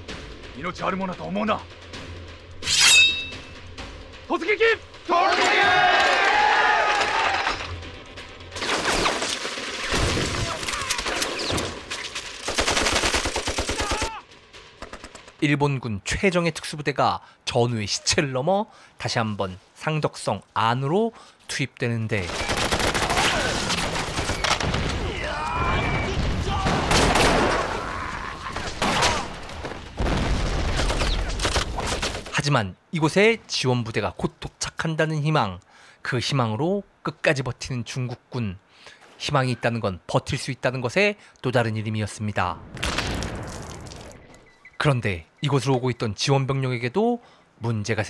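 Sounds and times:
men yelling: 4.7 - 7.7, 13.7 - 14.3, 25.0 - 28.7
machine-gun fire: 12.4 - 14.1, 22.3 - 24.9
rifle fire and gunshots: 12.4 - 14.1.

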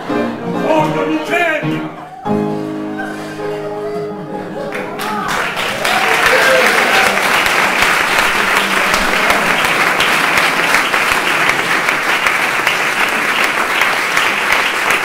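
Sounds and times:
crowd applauding: 4.4 - 15.0.

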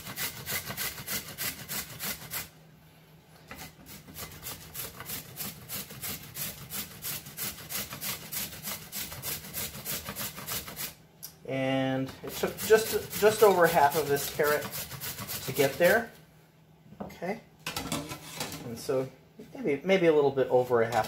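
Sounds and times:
carrot rasping on grater: 0.0 - 2.5, 3.5 - 11.0, 12.2 - 16.0.

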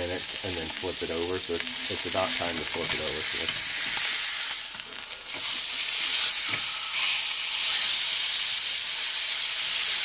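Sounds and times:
steak sizzling in a frying pan: 0.0 - 10.0
spatula scraping a pan: 1.6 - 8.2.

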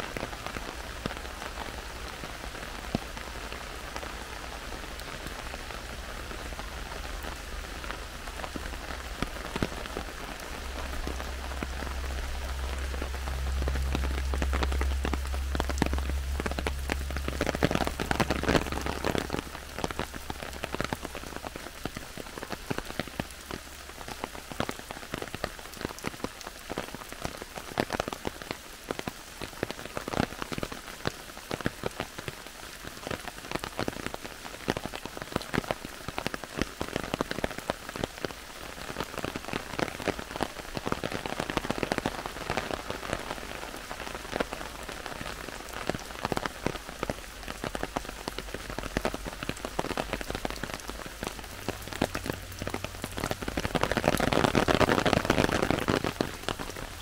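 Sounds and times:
heavy rain in a forest: 0.0 - 57.0
sharp raindrops striking: 0.0 - 57.0.

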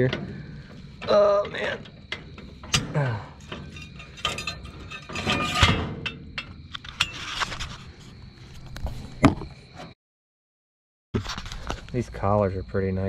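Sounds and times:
loud metal clank: 0.0 - 7.1
metal chains clinking: 0.0 - 7.2
metal scraping: 0.0 - 9.2.

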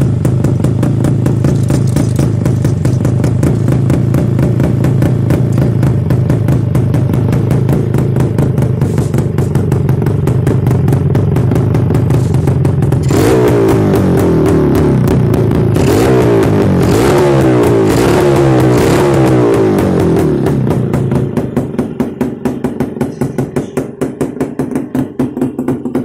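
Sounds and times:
two-stroke engine idling: 0.0 - 26.0.

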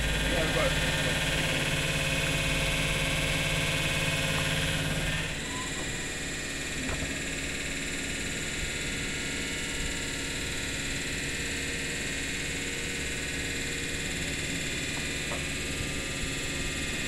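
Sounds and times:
electric train humming and hissing: 0.0 - 17.0.

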